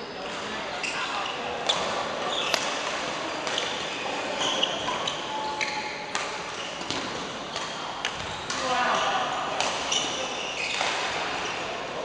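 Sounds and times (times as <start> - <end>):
sneaker squeaks on court: 0.0 - 9.2, 9.8 - 11.6
rackets striking shuttlecock: 1.6 - 3.9, 4.8 - 8.7, 9.5 - 11.3.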